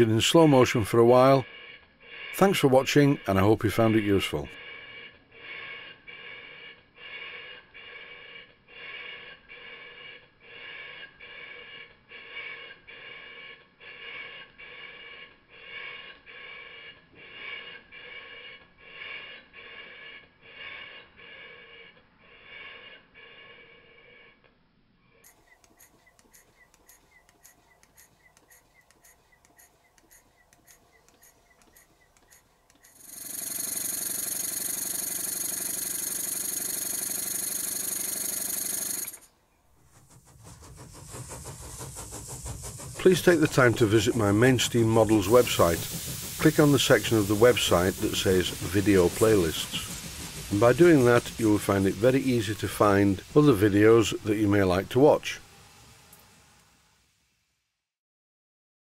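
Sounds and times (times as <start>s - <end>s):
model steam engine exhaust beating: 0.0s - 24.3s, 25.2s - 57.1s
model engine running steadily: 2.3s - 5.1s, 25.3s - 39.3s, 40.0s - 55.5s
faint rapid ticking: 25.2s - 39.3s, 40.2s - 55.4s.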